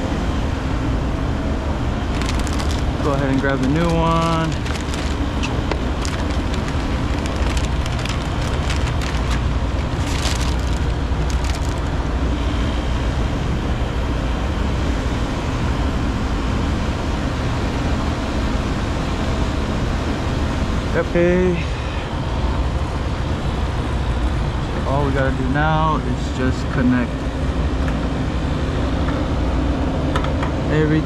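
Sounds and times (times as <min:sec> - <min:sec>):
steady low rumble: 0:00.0 - 0:18.8
foil bag crinkling: 0:02.1 - 0:12.1.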